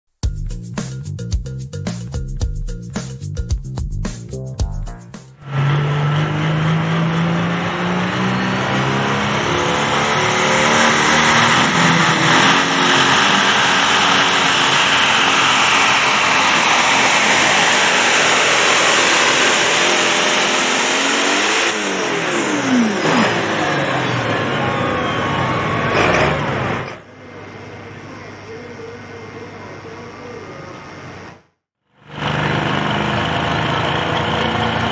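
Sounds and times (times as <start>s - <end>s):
tractor diesel engine revving: 5.4s - 34.9s.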